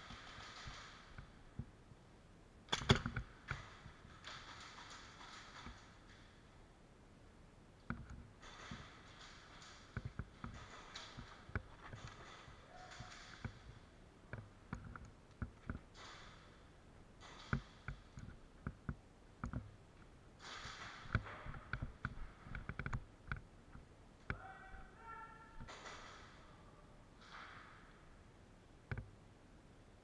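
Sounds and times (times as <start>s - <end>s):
clicks and knocks from gear: 0.0s - 1.3s, 2.7s - 6.3s, 7.8s - 16.5s, 17.2s - 19.7s.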